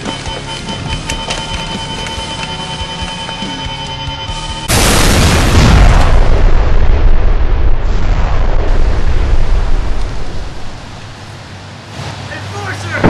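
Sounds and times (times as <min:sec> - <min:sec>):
explosion blast and rumble: 0:04.6 - 0:11.3.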